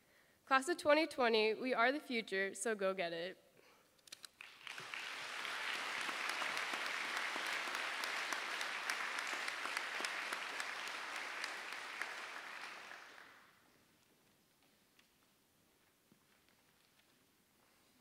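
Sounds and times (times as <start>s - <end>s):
audience applauding: 4.3s - 13.6s.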